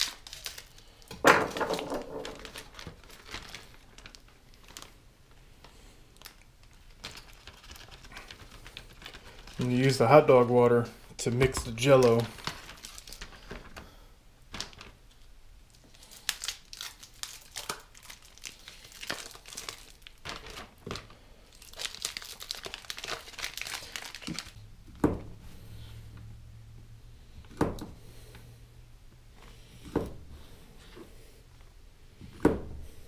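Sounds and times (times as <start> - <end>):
plastic packaging crinkling: 0.0 - 5.4, 6.0 - 24.6.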